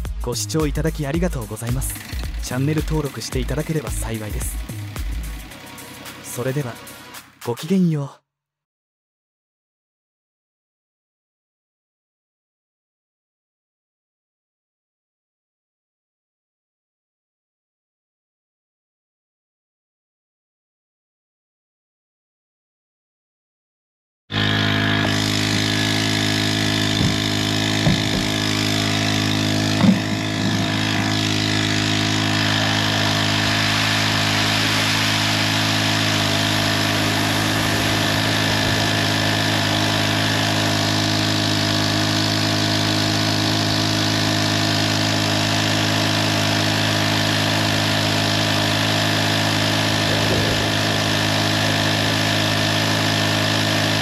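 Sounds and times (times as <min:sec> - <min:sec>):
water pump engine running: 0:01.3 - 0:07.4, 0:24.3 - 0:54.0
brief knocks: 0:27.0 - 0:28.4, 0:29.8 - 0:30.7.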